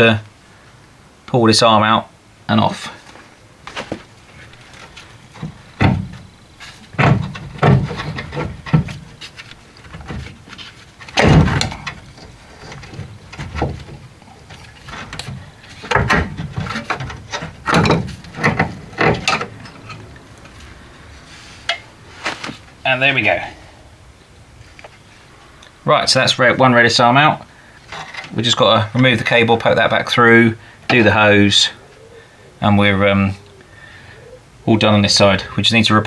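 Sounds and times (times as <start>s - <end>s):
metal knocks clunks and scrapes: 3.7s - 22.8s, 27.8s - 30.0s.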